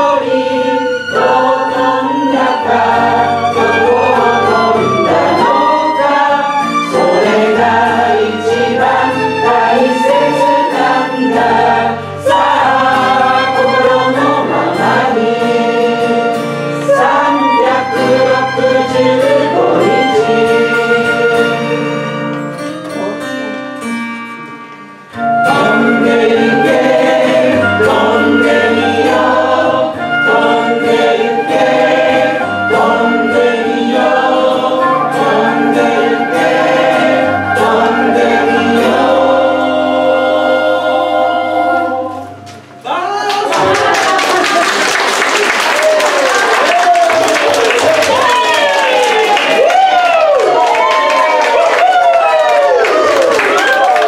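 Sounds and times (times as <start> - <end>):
flute: 0.0 - 22.3, 25.1 - 43.0, 45.6 - 54.0
group singing in unison: 0.0 - 22.4, 25.2 - 42.9
violin: 0.0 - 24.0, 25.0 - 42.9
acoustic guitar: 0.0 - 54.0.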